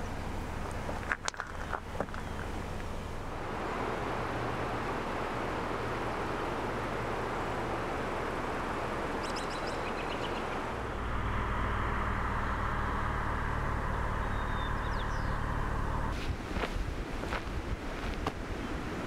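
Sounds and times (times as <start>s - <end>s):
car engine running: 0.0s - 18.4s
bird chirping: 9.1s - 10.7s, 13.9s - 16.0s.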